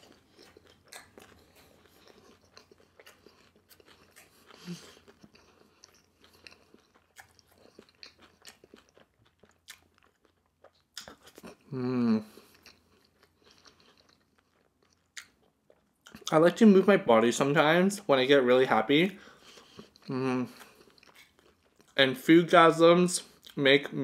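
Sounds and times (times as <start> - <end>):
person chewing crunchy food: 0.0 - 16.3, 19.2 - 22.0.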